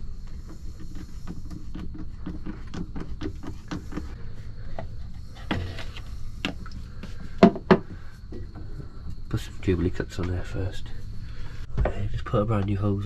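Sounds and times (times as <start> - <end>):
hose knocks: 7.4 - 8.7.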